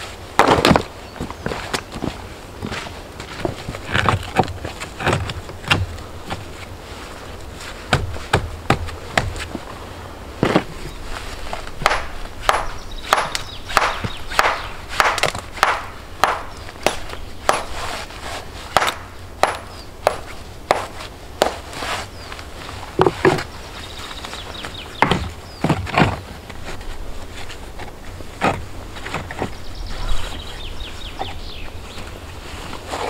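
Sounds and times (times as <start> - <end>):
hand tool strikes: 11.8 - 17.8, 18.7 - 21.6.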